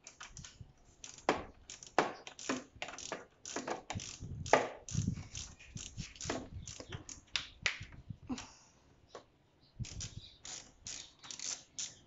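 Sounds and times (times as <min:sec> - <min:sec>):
tool clicking on plastic parts: 0:00.0 - 0:07.4.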